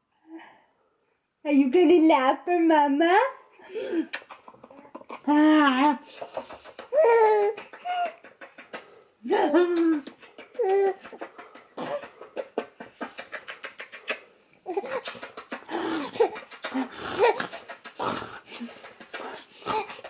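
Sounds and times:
baby laughing and squealing: 6.6s - 8.3s, 10.4s - 12.2s, 14.6s - 20.0s.

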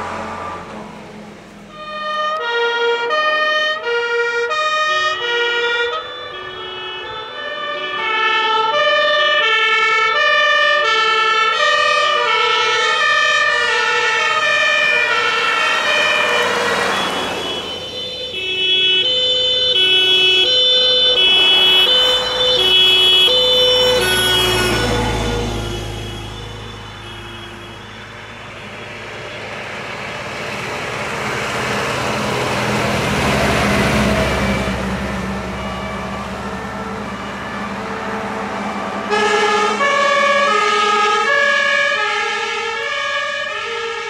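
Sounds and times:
vehicle passing close: 0.0s - 1.8s, 11.6s - 42.1s
two-tone emergency sirens wailing: 0.0s - 44.0s.

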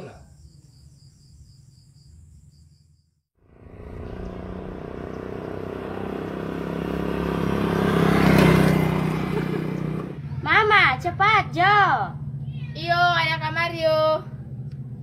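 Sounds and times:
crickets chirping: 0.0s - 7.1s
vehicle engine: 3.4s - 15.0s.

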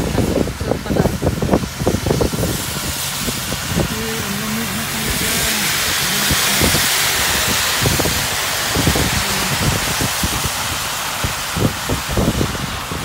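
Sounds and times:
tyres hissing through water: 0.0s - 13.0s.

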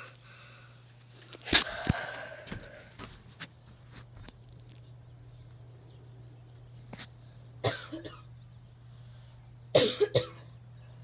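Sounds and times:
ceiling fan motor hum: 0.0s - 11.0s
person coughing: 7.6s - 8.2s, 9.8s - 10.4s.

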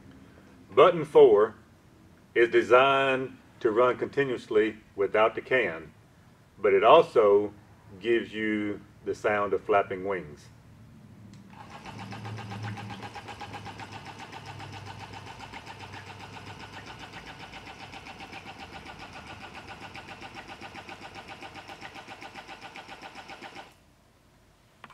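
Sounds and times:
mechanical chattering decoy: 11.6s - 23.7s.

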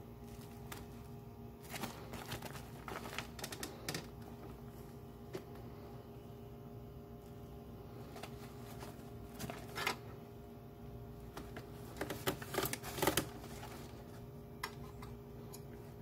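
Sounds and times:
faint steady hum: 0.0s - 16.0s
plastic bonnet crinkling and rustling: 0.1s - 5.6s, 7.9s - 10.2s, 11.2s - 14.3s.

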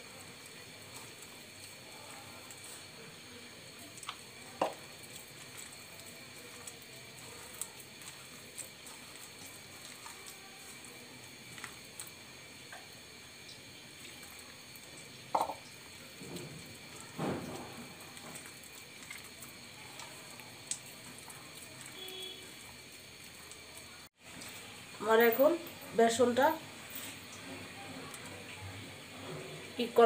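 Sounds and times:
wet squishing of batter mixing: 0.0s - 30.0s.

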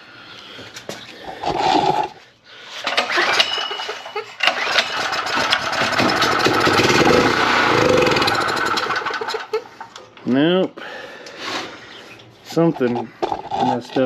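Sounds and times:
generator engine cranking and starting: 1.5s - 10.2s.

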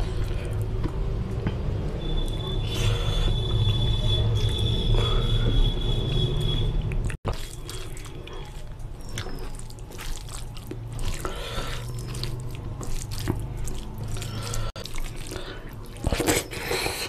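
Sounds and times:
fingers squelching wet rice: 6.9s - 17.0s.

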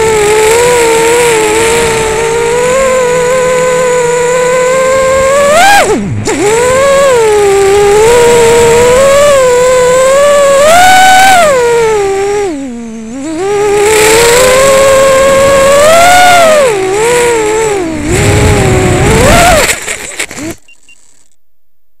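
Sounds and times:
quadcopter motors whining: 0.0s - 21.3s
propellers thrashing through grass: 17.0s - 20.7s.

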